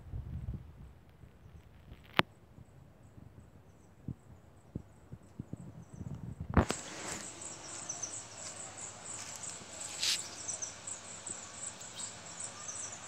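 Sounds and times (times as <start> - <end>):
steady outdoor hiss: 0.0 - 13.0
insects chirping: 6.6 - 13.0.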